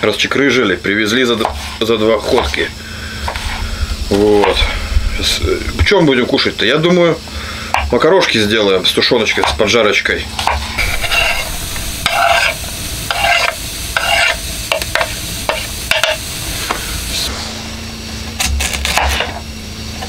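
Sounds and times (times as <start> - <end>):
knife scraping a pan: 10.4 - 16.2
onion sizzling in a pan: 10.4 - 19.2.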